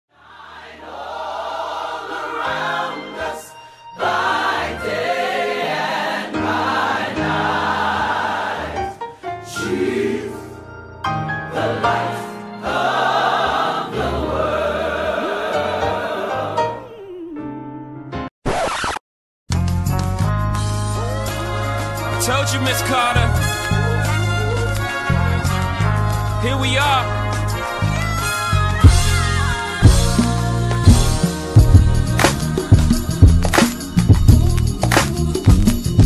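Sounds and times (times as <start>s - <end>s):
choir singing gospel music: 0.2s - 16.9s, 21.0s - 36.0s.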